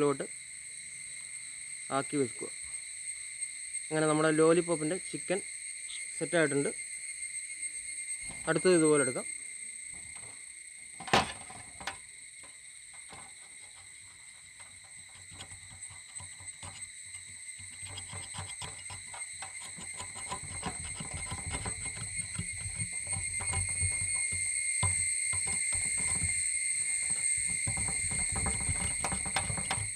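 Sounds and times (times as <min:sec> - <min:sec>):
high insect drone: 0:00.0 - 0:29.9
cleaver knocking on steel tray: 0:11.0 - 0:12.0, 0:17.6 - 0:29.9
cleaver scraping meat off bone: 0:13.0 - 0:29.9.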